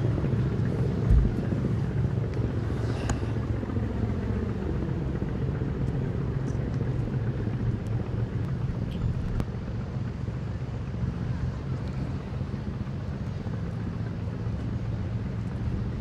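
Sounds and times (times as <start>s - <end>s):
ship engine low rumble: 0.0s - 16.0s.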